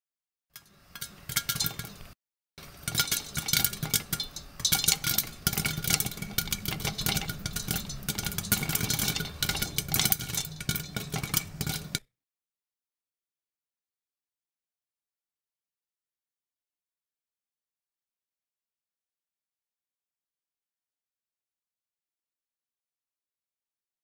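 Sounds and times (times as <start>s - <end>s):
kernels clinking against lid: 0.6s - 12.0s
popcorn popping in oil: 0.6s - 12.1s.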